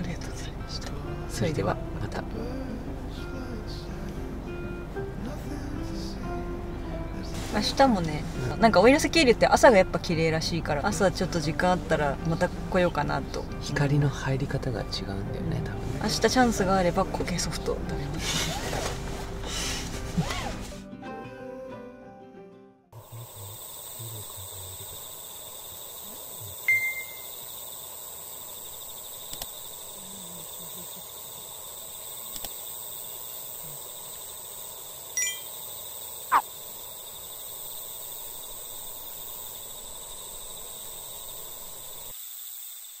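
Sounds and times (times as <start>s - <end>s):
low steady hiss: 0.0s - 18.1s, 23.0s - 43.0s
faint high tone: 26.7s - 27.3s.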